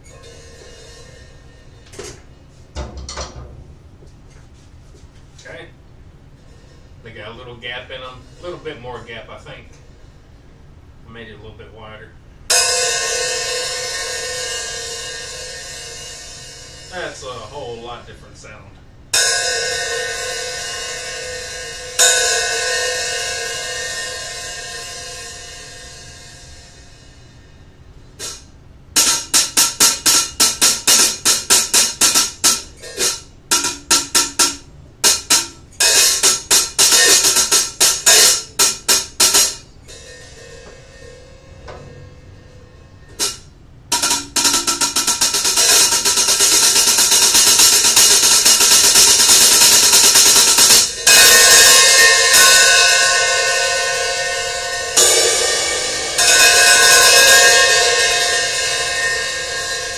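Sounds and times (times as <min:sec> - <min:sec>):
cymbal wash: 0:12.5 - 0:18.3, 0:19.1 - 0:59.9
hi-hat struck with drumsticks: 0:28.2 - 0:39.6, 0:43.1 - 0:59.9.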